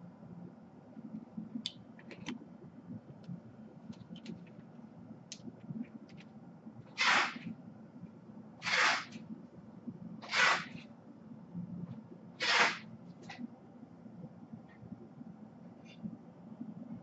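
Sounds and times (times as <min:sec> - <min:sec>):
short bursts of hiss: 0:07.0 - 0:07.4, 0:08.6 - 0:09.2, 0:10.2 - 0:10.8, 0:12.4 - 0:12.9.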